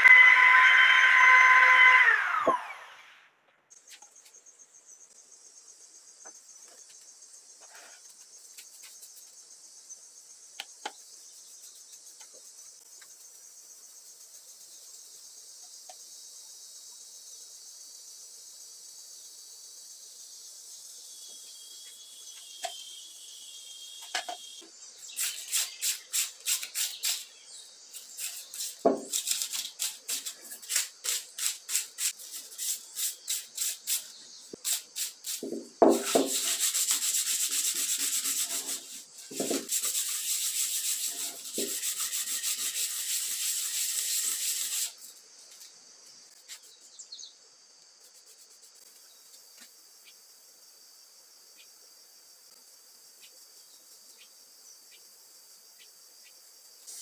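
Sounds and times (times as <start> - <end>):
crickets chirping: 3.7 - 57.0
sandpaper rubbing on wood: 25.1 - 27.3, 28.0 - 45.0.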